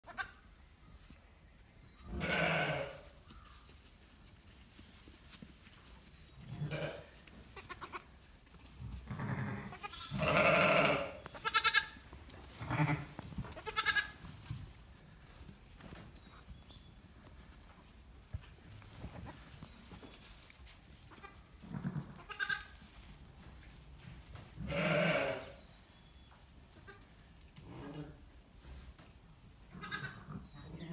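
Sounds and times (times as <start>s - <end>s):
sheep bleating: 2.2s - 3.0s, 6.6s - 8.0s, 9.1s - 12.0s, 12.6s - 14.1s, 24.6s - 25.5s, 29.8s - 30.9s.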